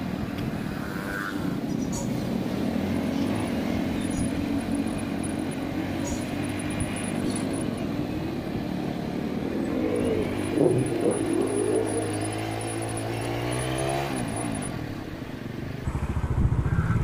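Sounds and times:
motorcycle engine running: 0:00.0 - 0:16.7
wind noise on microphone: 0:15.8 - 0:17.0.

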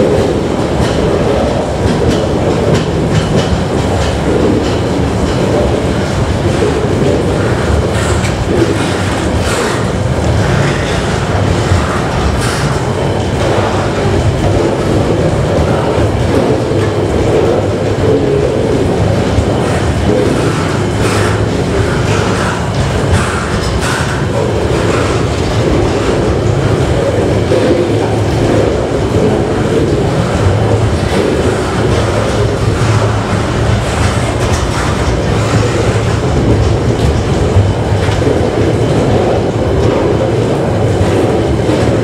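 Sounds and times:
freight train wheels rumbling: 0:00.0 - 0:42.0
wheels clacking on rails: 0:00.0 - 0:42.0.

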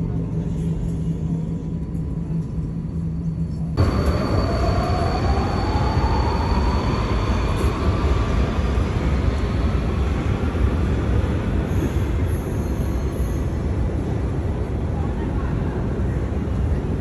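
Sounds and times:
train rumble: 0:00.0 - 0:17.0
electric train motor whine: 0:03.8 - 0:09.8.

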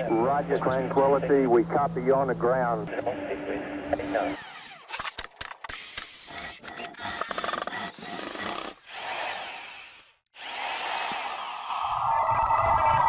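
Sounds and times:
mitre saw cutting wood: 0:03.9 - 0:05.2, 0:05.8 - 0:12.1.

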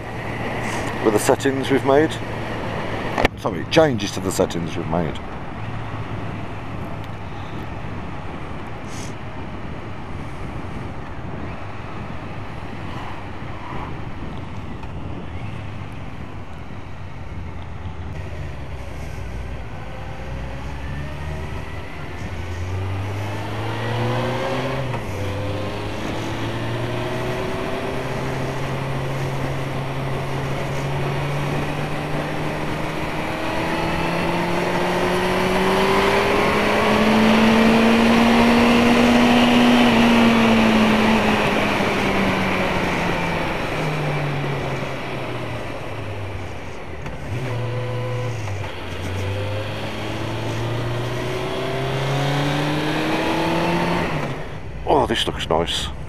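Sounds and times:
motorcycle engine revving: 0:18.2 - 0:54.7.

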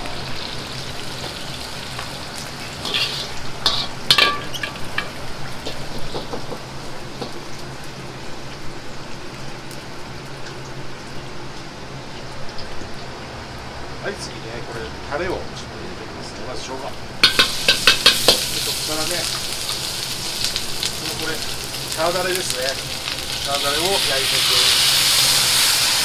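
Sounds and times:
food sizzling in hot oil: 0:00.0 - 0:14.4, 0:16.7 - 0:26.0
metal ladle clanking on wok: 0:02.8 - 0:06.5, 0:17.2 - 0:18.5.

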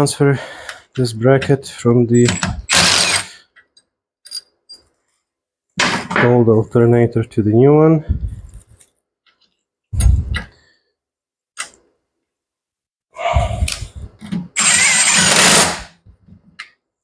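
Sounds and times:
impact driver spinning a bolt: 0:02.4 - 0:03.3, 0:14.6 - 0:15.9.

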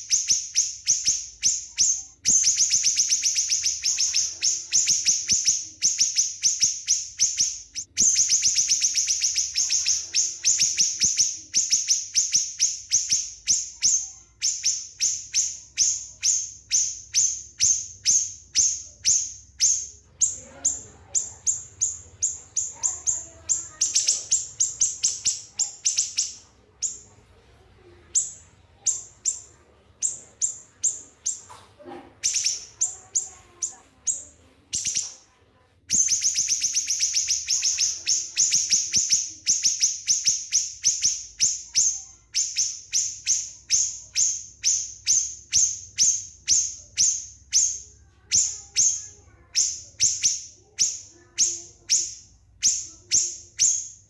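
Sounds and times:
small songbird singing: 0:00.0 - 0:54.0.

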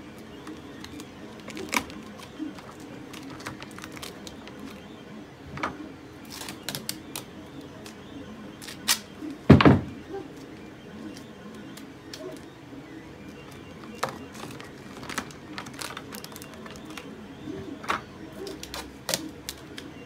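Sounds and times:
tape clicks and rustles: 0:00.0 - 0:04.8, 0:05.6 - 0:08.0, 0:13.5 - 0:17.1, 0:17.8 - 0:20.0.

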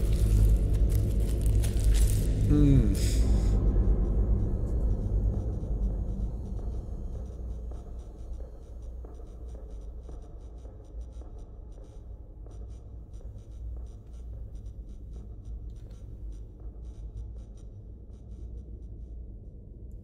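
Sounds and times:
low rumble: 0:00.0 - 0:08.7.

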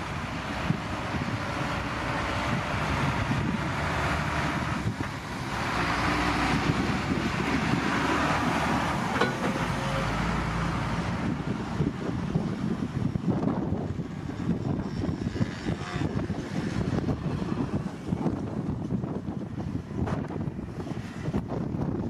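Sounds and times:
wind on microphone: 0:00.0 - 0:09.5, 0:10.2 - 0:22.0.

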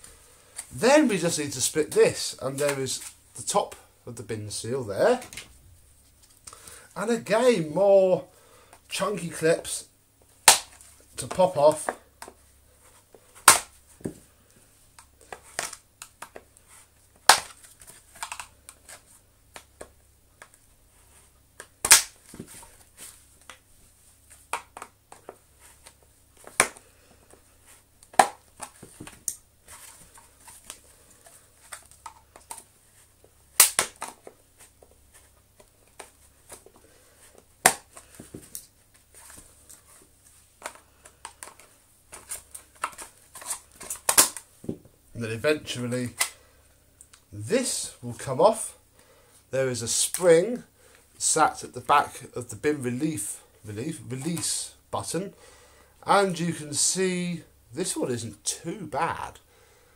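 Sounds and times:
plastic clips snapping: 0:33.6 - 0:34.3, 0:42.8 - 0:44.4.

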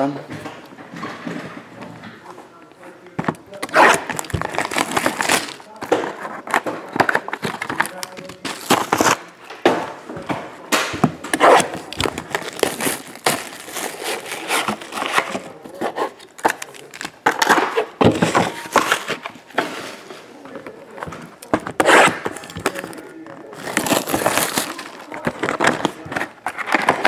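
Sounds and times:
plastic and foil packs crinkling: 0:02.1 - 0:27.0
cardboard boxes knocking: 0:17.2 - 0:19.7.

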